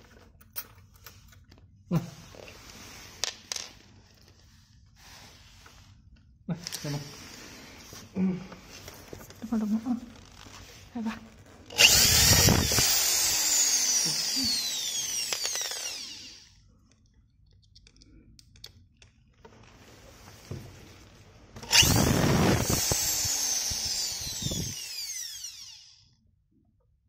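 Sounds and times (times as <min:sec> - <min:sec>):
cordless drill driving screws: 0:11.7 - 0:16.6, 0:21.6 - 0:26.1.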